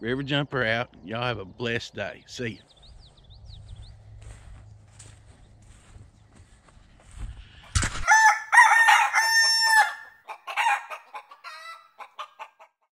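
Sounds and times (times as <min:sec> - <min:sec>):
rooster crowing: 0:08.0 - 0:12.1
chicken clucking: 0:10.2 - 0:12.9.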